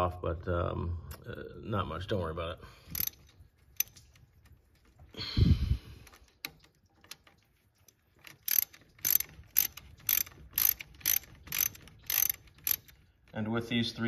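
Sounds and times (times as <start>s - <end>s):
socket ratchet clicking: 2.9s - 4.2s, 8.2s - 13.0s.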